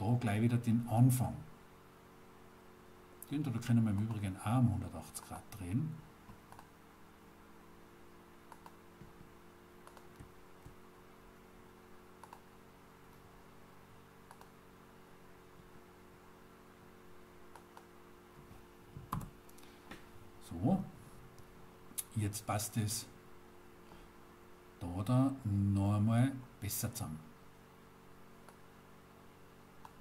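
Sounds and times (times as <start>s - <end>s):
low electrical hum: 0.0s - 30.0s
computer mouse clicks: 6.3s - 6.7s, 8.5s - 8.8s, 9.8s - 10.8s, 12.2s - 12.5s, 14.2s - 14.6s, 17.5s - 17.9s, 28.4s - 28.6s, 29.8s - 30.0s.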